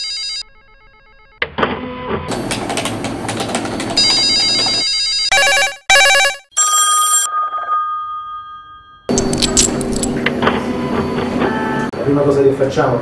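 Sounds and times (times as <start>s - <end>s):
electronic telephone ringing: 0.0s - 1.3s, 4.0s - 9.2s.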